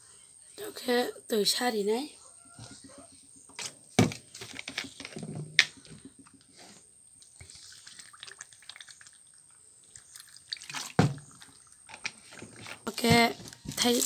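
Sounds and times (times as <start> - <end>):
liquid trickling into a tube: 7.1 - 12.8.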